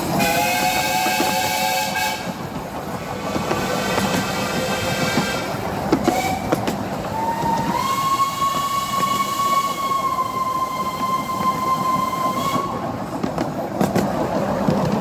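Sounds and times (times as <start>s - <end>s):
carriage wheels rattling on track: 0.0s - 15.0s
steam locomotive whistle: 0.1s - 2.4s, 3.6s - 12.8s.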